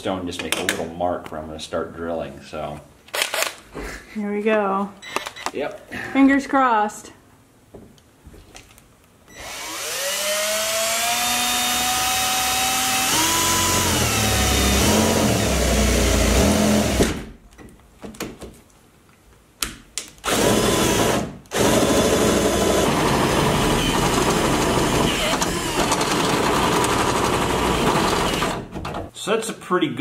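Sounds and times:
power drill whining: 0:09.3 - 0:17.2, 0:20.2 - 0:28.7
drill bit grinding metal: 0:09.4 - 0:17.0, 0:20.3 - 0:28.6.

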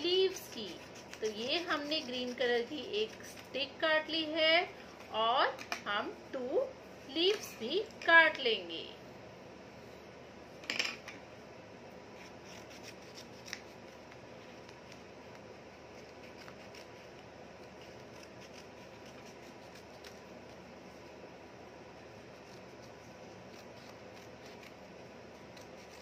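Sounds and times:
scissors snipping paper: 0:00.1 - 0:03.6, 0:12.4 - 0:20.3, 0:22.2 - 0:26.0.

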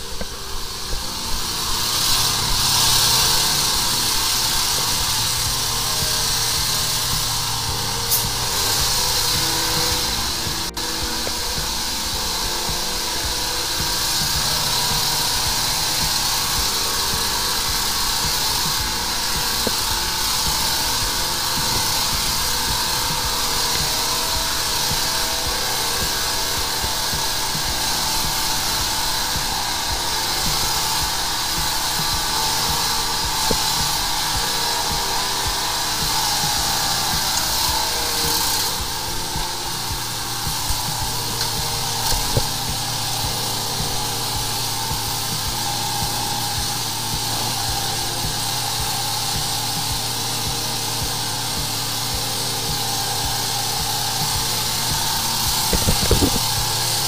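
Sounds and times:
pressurised water hissing: 0:00.0 - 0:57.0
pump drone: 0:00.0 - 0:57.0.

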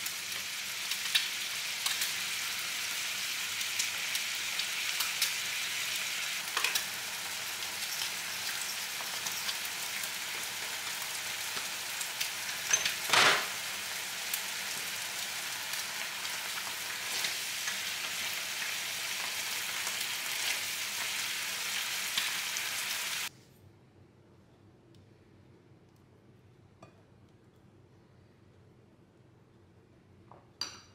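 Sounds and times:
meat sizzling in a frying pan: 0:00.0 - 0:23.3.

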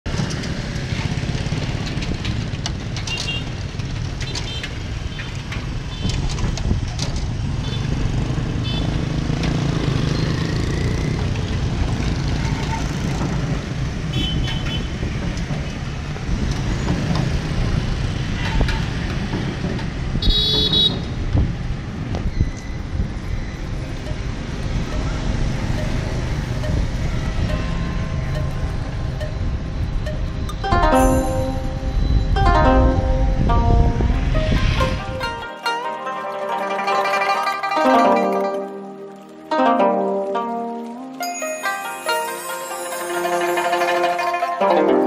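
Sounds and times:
motorbike traffic rumbling: 0:00.1 - 0:45.0
horn beeps: 0:29.2 - 0:35.7.

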